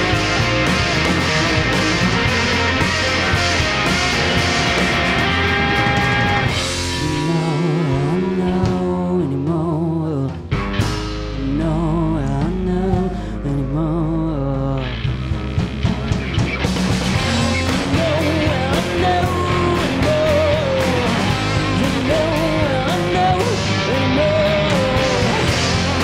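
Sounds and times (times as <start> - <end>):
melodic lead line: 0.0 - 10.0, 15.6 - 26.0
live rock band playing: 0.0 - 26.0.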